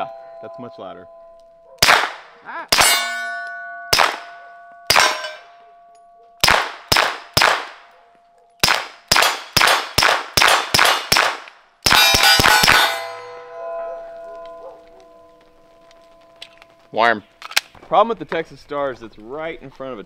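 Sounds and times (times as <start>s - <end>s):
suppressed pistol shots: 1.8s - 3.1s, 3.9s - 5.4s, 6.4s - 7.9s, 8.6s - 12.9s
steel plates ringing: 2.7s - 6.4s, 11.9s - 17.4s.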